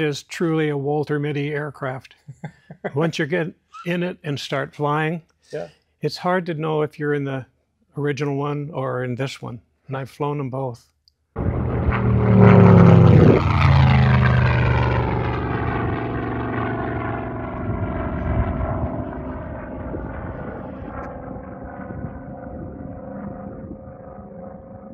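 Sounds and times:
propeller plane flyby: 11.4 - 24.9.

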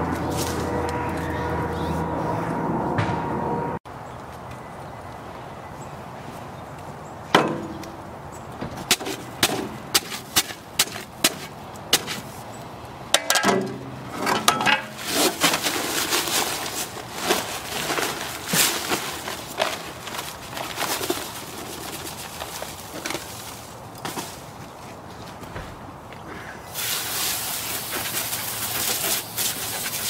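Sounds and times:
shovel striking paper bag: 8.9 - 12.2, 15.0 - 23.3
paper bag rustling: 14.8 - 24.5.

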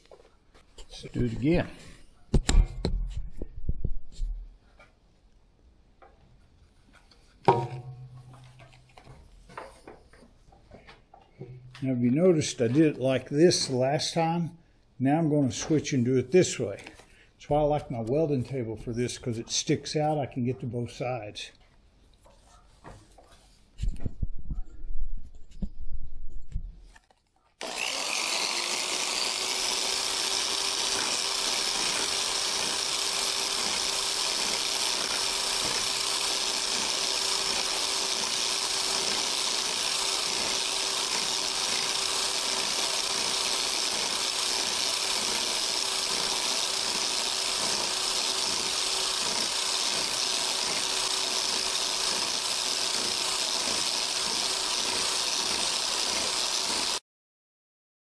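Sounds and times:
electric scraper buzzing on metal: 27.6 - 57.0.

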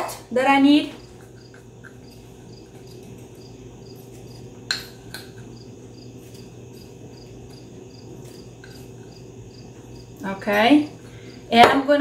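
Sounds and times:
cricket chirping: 0.9 - 11.5.

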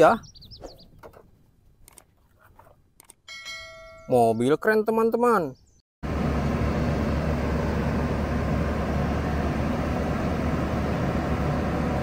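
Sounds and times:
diesel engine running: 6.0 - 12.0.

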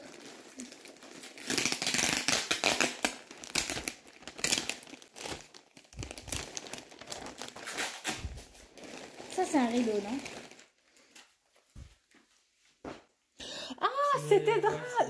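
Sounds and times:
plastic bag crinkling: 0.0 - 11.5.

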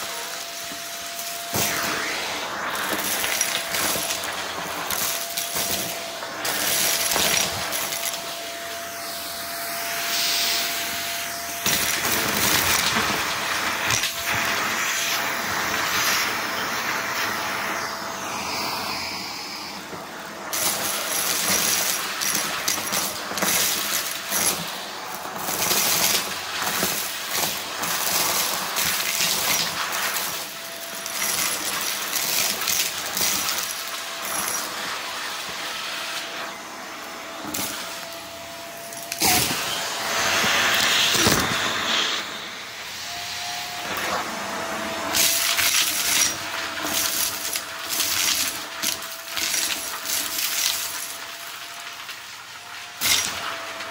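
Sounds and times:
vacuum cleaner motor whine: 0.0 - 53.9
debris rattling through vacuum: 0.4 - 9.0.

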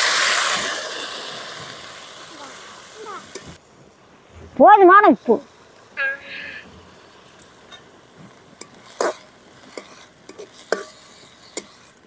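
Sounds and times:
ladle scraping a metal pot: 8.6 - 12.0.

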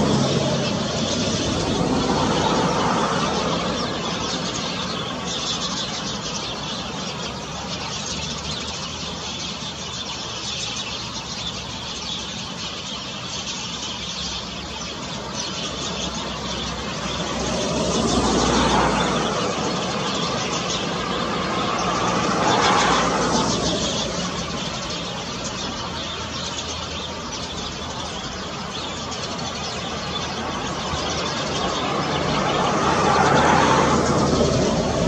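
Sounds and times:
vehicle passing: 0.0 - 5.4, 16.0 - 25.6, 29.9 - 35.0
road traffic noise: 0.0 - 35.0.

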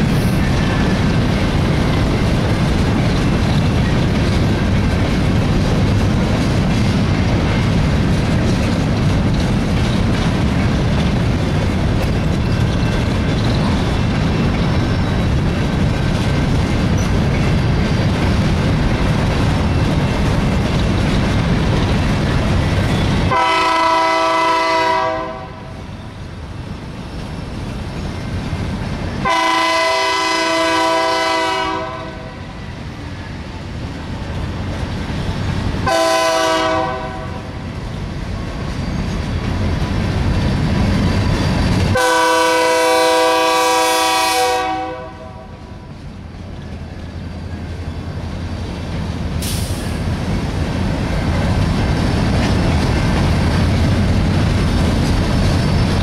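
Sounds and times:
train cars rumbling and clattering: 0.0 - 56.0
locomotive horn blasts: 23.3 - 25.7, 29.2 - 32.4, 35.9 - 37.5, 42.0 - 45.6.

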